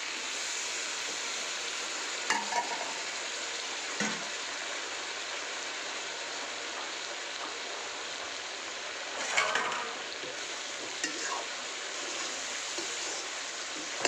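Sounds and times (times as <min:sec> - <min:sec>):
curry sizzling in a pan: 0:00.0 - 0:14.0
spatula scraping: 0:11.0 - 0:14.0.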